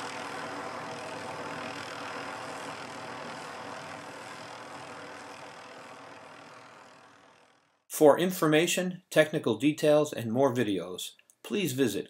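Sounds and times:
helicopter running: 0.0 - 8.0.

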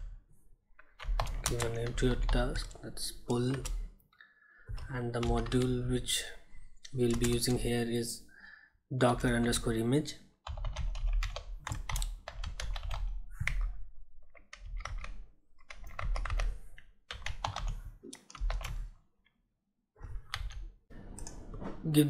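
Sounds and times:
typing on computer keyboard: 0.8 - 2.8, 4.7 - 5.8, 7.0 - 7.6, 10.4 - 18.9, 20.0 - 20.7.

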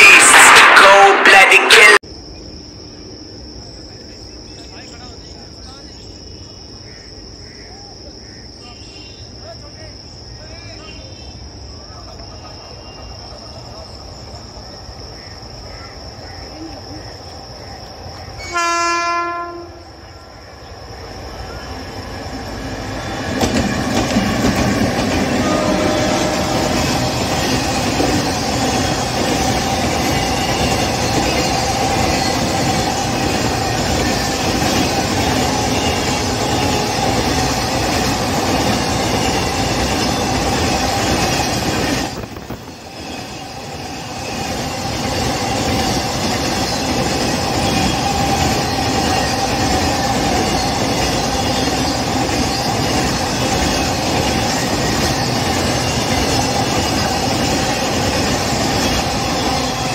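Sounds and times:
train wheels rumbling on rails: 19.4 - 59.9.

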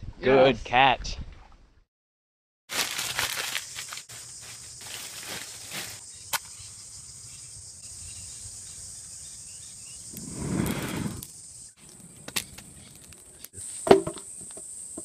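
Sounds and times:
twigs rustling: 2.7 - 6.1
steady high hiss: 7.8 - 11.9.

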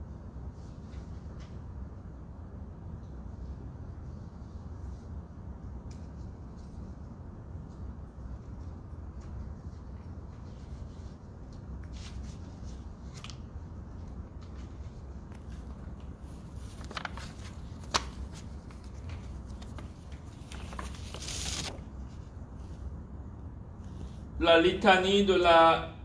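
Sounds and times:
low steady hum: 0.0 - 26.0
paper pages rustling: 8.6 - 22.9.

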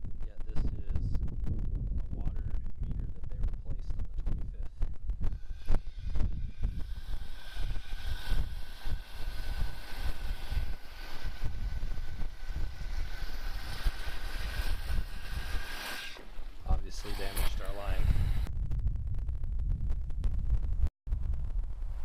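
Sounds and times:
wind buffeting microphone: 0.0 - 22.0
steady hiss: 5.4 - 18.5.

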